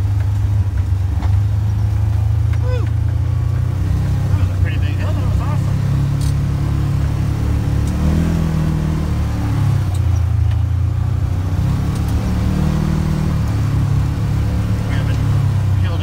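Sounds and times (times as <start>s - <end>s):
vehicle engine running: 0.0s - 16.0s.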